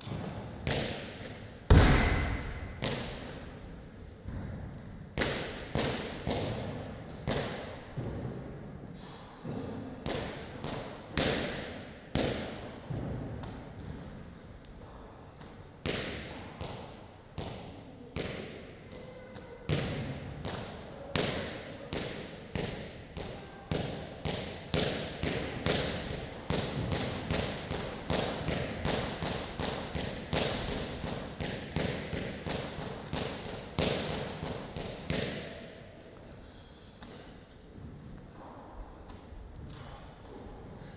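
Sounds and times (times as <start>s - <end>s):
medicine ball thudding against wall: 1.7s - 3.2s.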